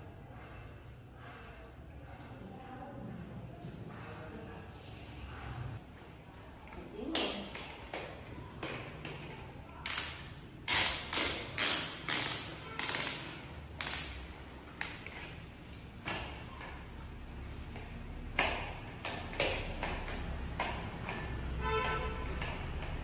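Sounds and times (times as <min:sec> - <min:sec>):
wet mop wiping tiled floor: 0:10.7 - 0:23.0.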